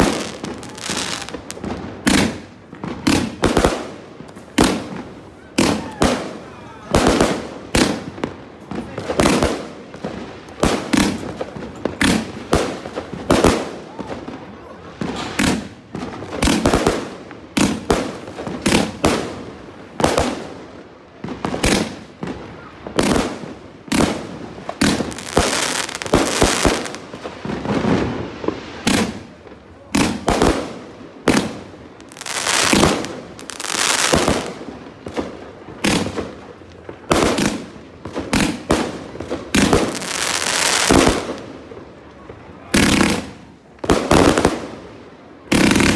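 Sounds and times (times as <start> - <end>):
fireworks bangs: 0.0 - 45.9.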